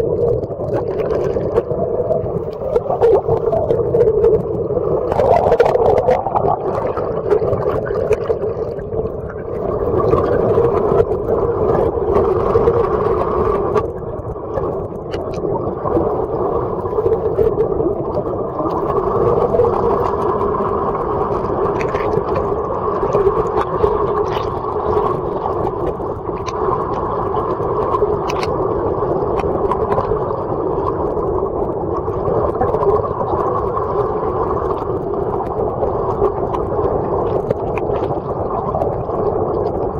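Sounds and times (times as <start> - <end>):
muffled underwater boat engine drone: 0.0 - 39.9
faint clicks: 15.1 - 15.4, 28.2 - 28.5.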